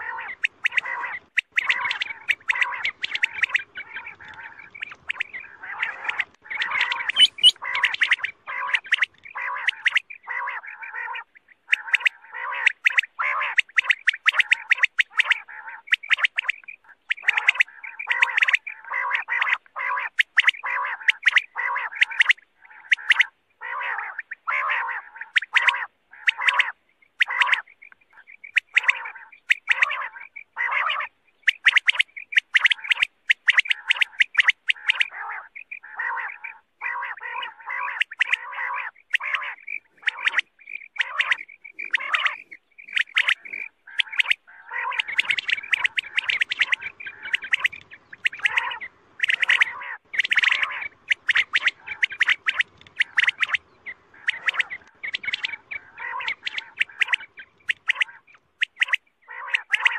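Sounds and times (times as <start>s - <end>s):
quail calling: 0.0s - 59.9s.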